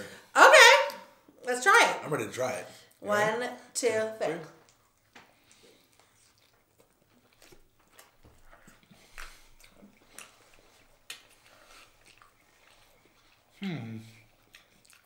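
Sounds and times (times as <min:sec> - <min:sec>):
people chewing: 0:04.4 - 0:15.0.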